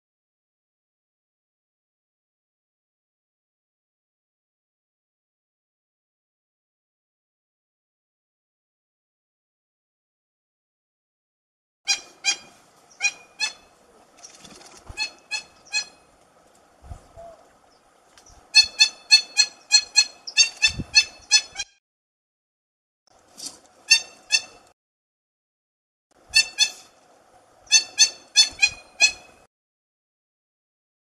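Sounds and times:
toucans honking calls: 11.9 - 14.1, 14.9 - 16.2, 18.2 - 21.7, 23.8 - 24.7, 26.3 - 27.0, 27.6 - 29.5.

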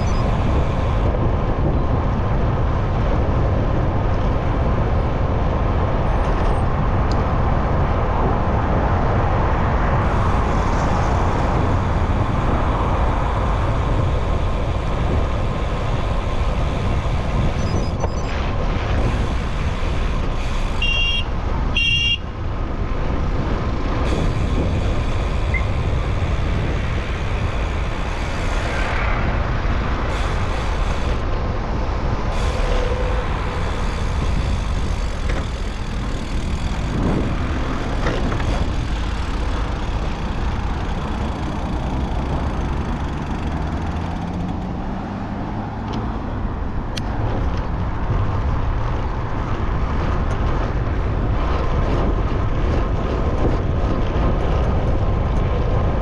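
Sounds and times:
road traffic rumble: 0.0 - 56.0
engine speeding up: 34.0 - 47.3.

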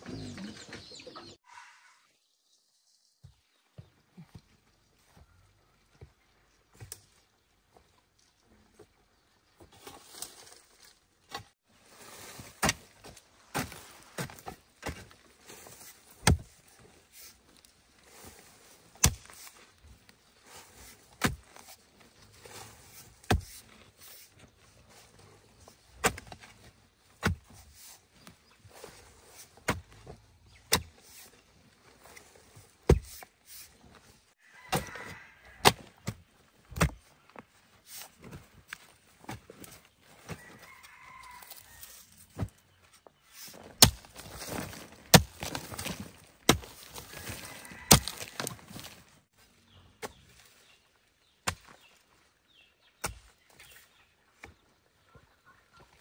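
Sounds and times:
loose soil scuffs: 9.6 - 52.1
digging tool striking earth: 12.3 - 17.4, 18.9 - 19.7, 20.6 - 24.4, 25.9 - 31.4, 32.0 - 33.8, 34.6 - 37.1, 43.4 - 49.0, 51.3 - 51.9, 53.0 - 53.8.

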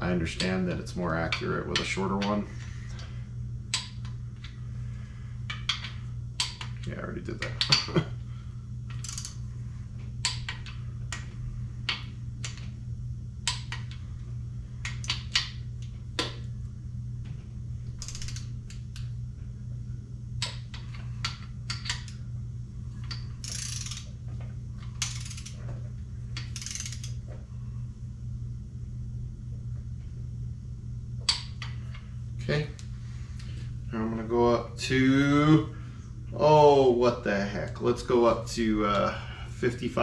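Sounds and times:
steady low hum: 0.0 - 40.0
torque wrench ratcheting and clicking: 8.9 - 9.4, 18.0 - 19.0, 23.1 - 24.1, 25.0 - 25.6, 26.4 - 27.2.

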